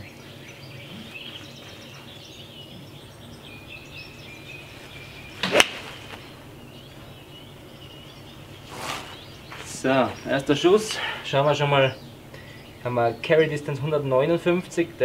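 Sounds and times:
golf club swish: 4.8 - 6.4
club striking golf ball: 5.3 - 6.4.

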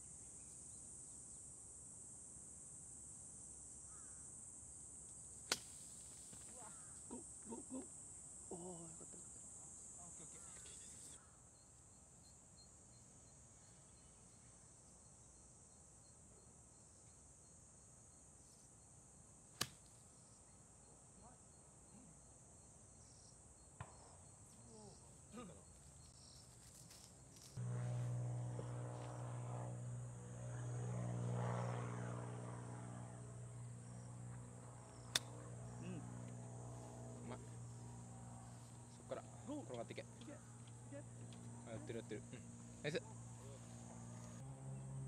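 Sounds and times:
insects chirring: 0.0 - 44.4
sharp crack: 5.5 - 6.6, 35.1 - 35.5
steady low hum: 27.0 - 45.0.

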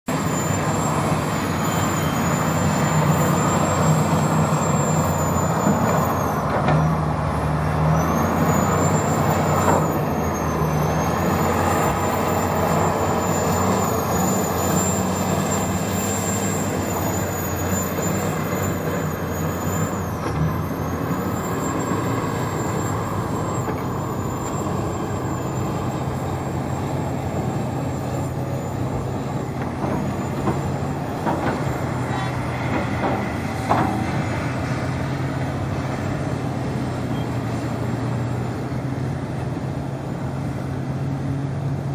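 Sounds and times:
excavator diesel engines running: 0.1 - 41.9.

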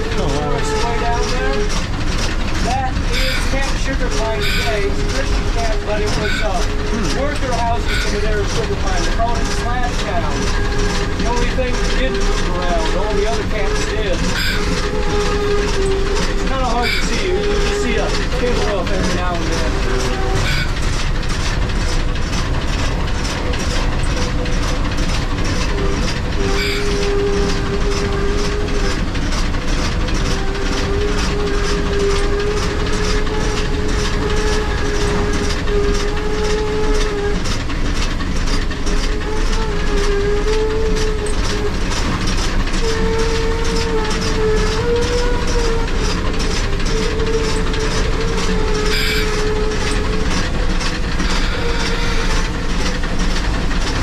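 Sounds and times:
steam locomotive chuffing: 0.0 - 54.0
wavering whistle tone: 3.1 - 3.6, 4.4 - 4.8, 14.3 - 18.8, 25.7 - 29.0, 47.0 - 50.0.

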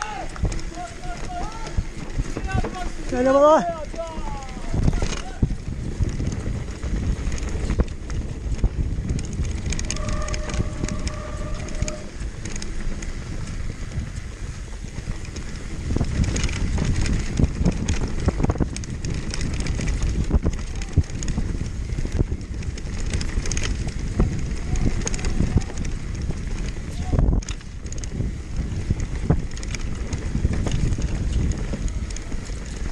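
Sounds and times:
chain and frame rattling: 0.0 - 14.0, 15.0 - 32.9
mountain bike tyres rumbling: 0.0 - 32.9
wind buffeting microphone: 0.0 - 32.9
steady whine: 9.8 - 12.8.

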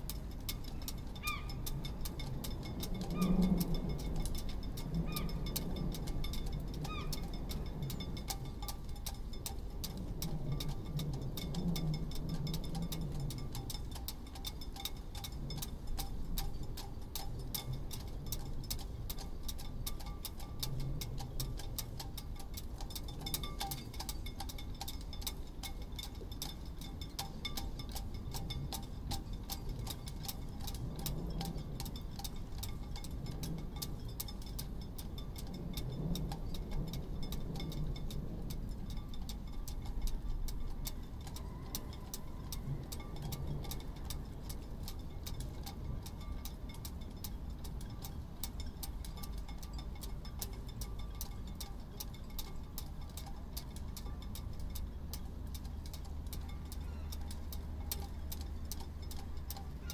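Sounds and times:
low rumble of wind: 0.0 - 59.9
sailboat rigging clinking on masts: 0.0 - 59.9.

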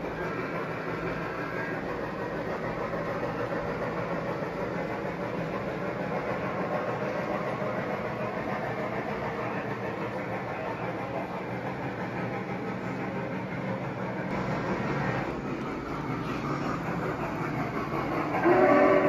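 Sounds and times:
model train wheels rolling on rail: 0.0 - 19.0.

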